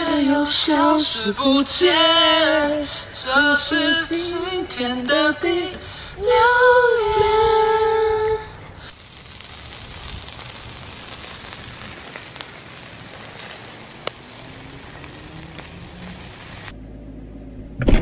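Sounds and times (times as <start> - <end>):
meat sizzling on a grill: 8.9 - 16.8.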